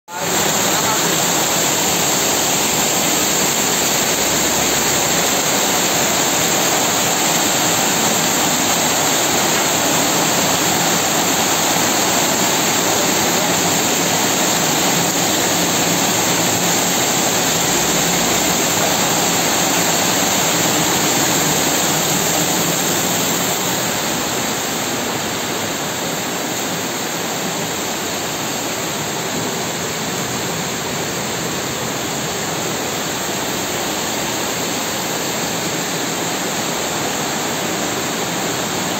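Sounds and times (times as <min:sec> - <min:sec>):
heavy rain pouring: 0:00.1 - 0:38.9.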